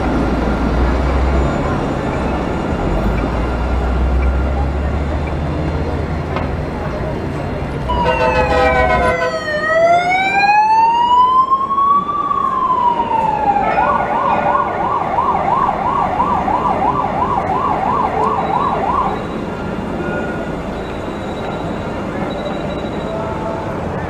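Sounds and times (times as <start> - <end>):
emergency vehicle siren: 7.8 - 23.3.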